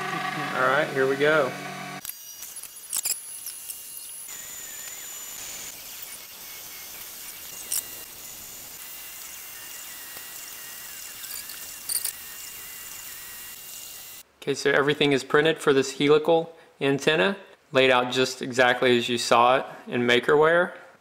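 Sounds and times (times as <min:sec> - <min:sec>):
stepper motors whining: 0:00.0 - 0:14.2.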